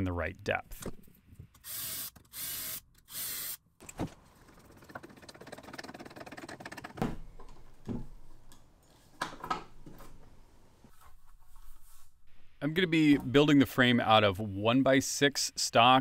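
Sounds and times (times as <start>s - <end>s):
cordless drill drilling: 1.6s - 3.6s.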